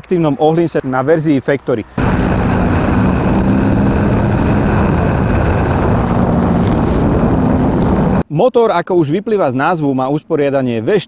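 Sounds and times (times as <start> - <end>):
motorcycle engine running: 2.0 - 8.2
wind rush on microphone: 2.0 - 8.2.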